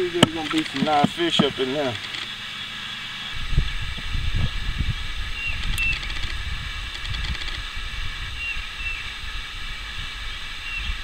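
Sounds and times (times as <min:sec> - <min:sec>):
faint high whine: 0:00.0 - 0:11.0
wind buffeting microphone: 0:03.3 - 0:11.0.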